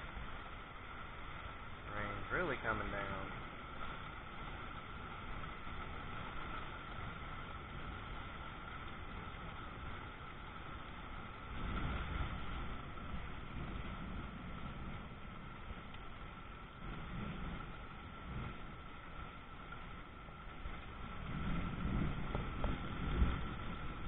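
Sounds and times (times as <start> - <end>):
heavy rain pouring: 0.0 - 24.0
low rumble: 0.0 - 24.0.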